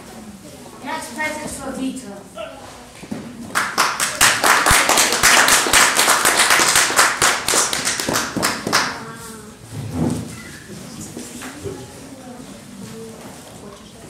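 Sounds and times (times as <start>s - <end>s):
audience clapping: 3.5s - 9.0s.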